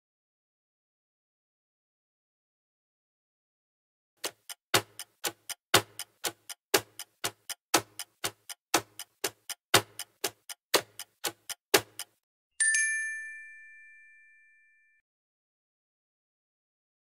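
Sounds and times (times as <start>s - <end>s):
clock ticking: 4.2s - 12.2s.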